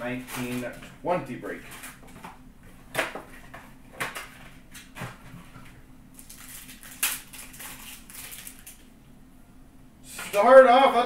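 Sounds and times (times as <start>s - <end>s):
wrapper crinkling and ripping: 0.2s - 0.8s, 6.1s - 8.9s
sharp clacks of card packs: 0.2s - 0.9s, 6.2s - 8.8s.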